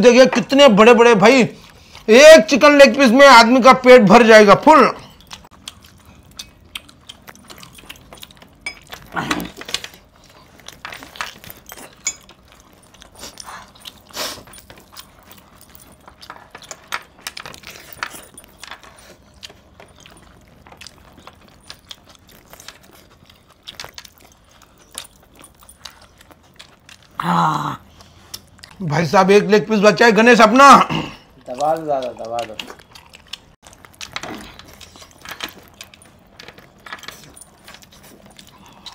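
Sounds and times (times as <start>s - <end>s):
metal jewellery jangling: 10.6s - 22.9s
chicken being torn and chewed: 31.3s - 38.9s.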